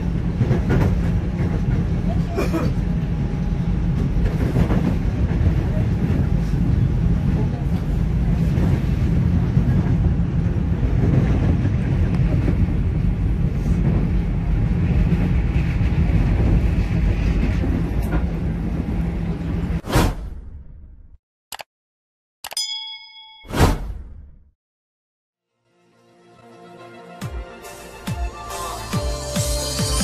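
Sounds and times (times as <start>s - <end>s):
train rumbling over steel bridge: 0.0s - 19.8s.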